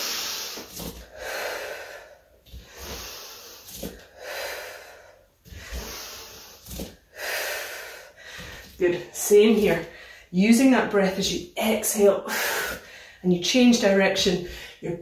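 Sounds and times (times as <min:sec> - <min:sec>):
woman breathing heavily: 0:00.0 - 0:08.8, 0:09.9 - 0:10.3, 0:12.2 - 0:13.2, 0:14.4 - 0:14.8.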